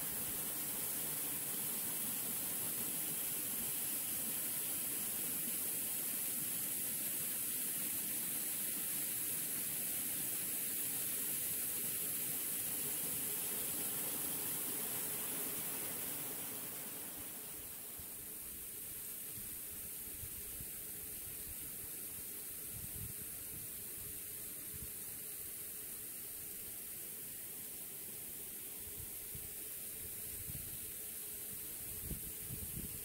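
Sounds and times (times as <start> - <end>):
water falling down frozen waterfall: 0.0 - 18.0.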